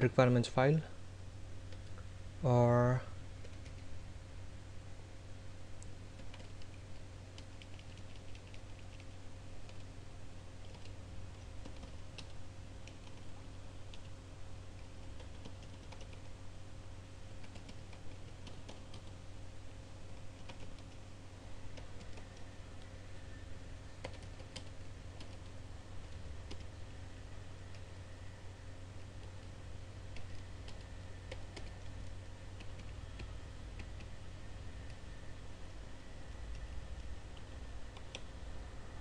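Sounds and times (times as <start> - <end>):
low hum: 0.0 - 39.0
keyboard typing: 3.4 - 3.9, 6.2 - 9.9, 10.6 - 13.3, 14.8 - 16.3, 17.4 - 19.2, 20.1 - 21.0, 21.7 - 22.4, 24.0 - 26.7, 30.1 - 34.2.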